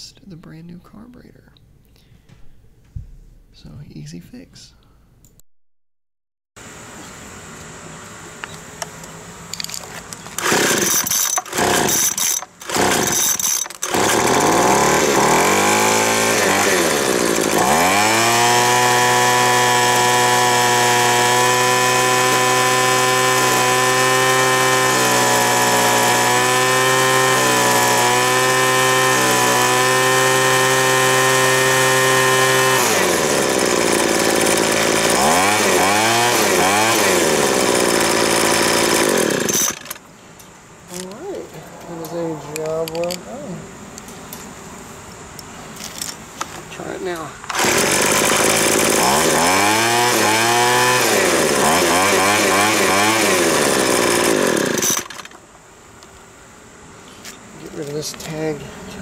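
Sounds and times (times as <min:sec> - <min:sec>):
leaf blower engine revving: 0:10.3 - 0:40.0, 0:47.5 - 0:55.4.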